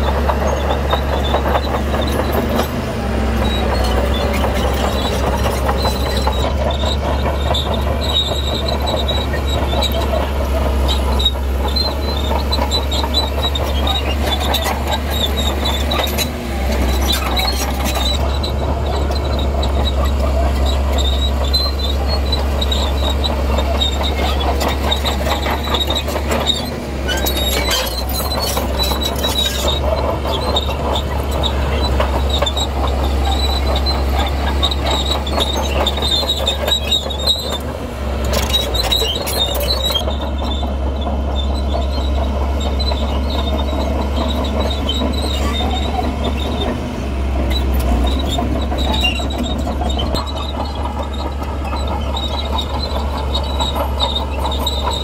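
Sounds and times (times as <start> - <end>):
diesel engine drone: 0.0 - 55.0
steel crawler tracks clanking: 0.0 - 55.0.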